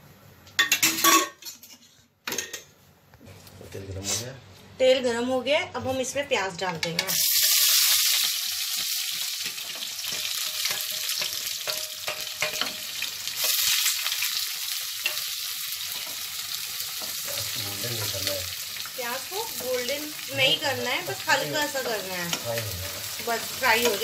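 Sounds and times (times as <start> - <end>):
onions sizzling in hot oil: 7.1 - 24.0.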